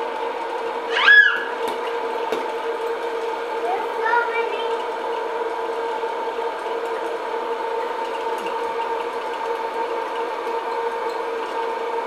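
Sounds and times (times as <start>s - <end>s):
popcorn popper fan humming: 0.0s - 12.0s.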